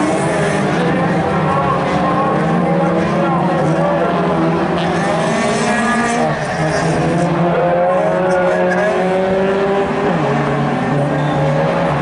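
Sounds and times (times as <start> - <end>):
race car engines running hard: 0.0 - 12.0.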